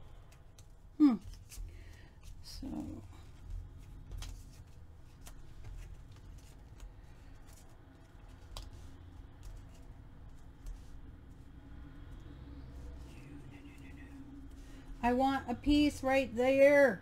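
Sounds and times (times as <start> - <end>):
paper rustling: 0.3 - 11.5.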